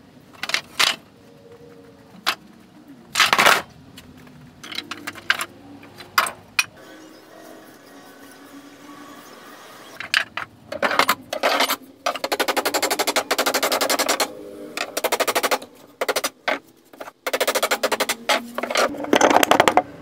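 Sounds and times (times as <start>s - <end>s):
power tool rattling on board: 17.0s - 19.8s.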